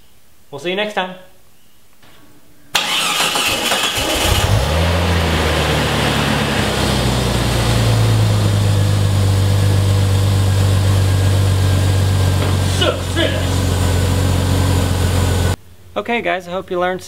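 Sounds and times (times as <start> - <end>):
car engine starting and idling: 2.8 - 15.6.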